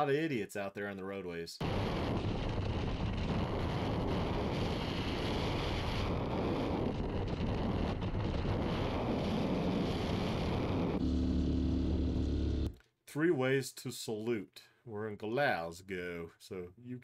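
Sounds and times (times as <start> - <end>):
wind buffeting microphone: 1.6 - 11.0.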